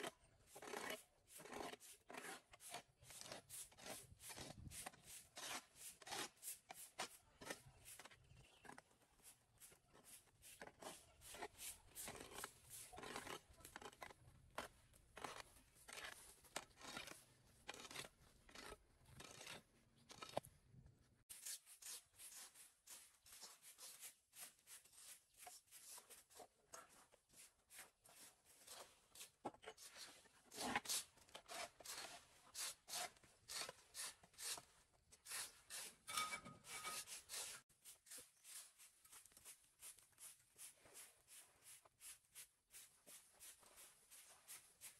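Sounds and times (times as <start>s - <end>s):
hoe scraping soil: 0.0s - 20.4s, 21.4s - 44.9s
broom sweeping on concrete: 2.6s - 8.1s, 9.1s - 13.0s, 21.3s - 30.2s, 33.9s - 44.9s.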